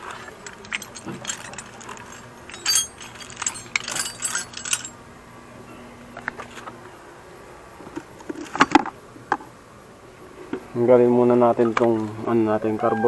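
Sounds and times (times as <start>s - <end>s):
metal tools clinking: 0.0s - 5.0s.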